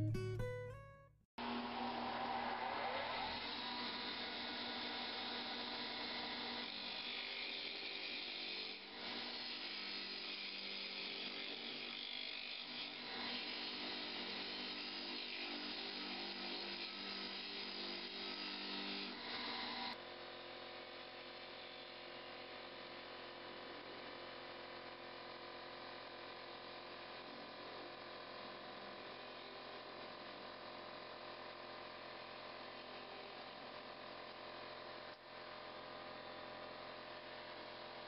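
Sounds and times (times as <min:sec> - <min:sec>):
lathe motor hum: 0:01.4 - 0:20.0.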